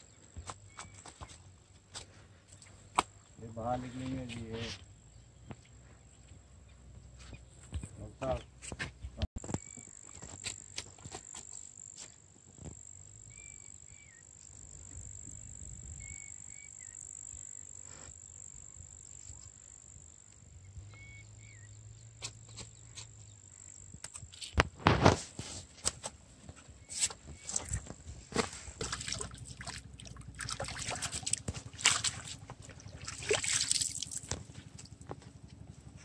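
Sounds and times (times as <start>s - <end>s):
net and rope clattering on rock: 26.9s - 35.0s.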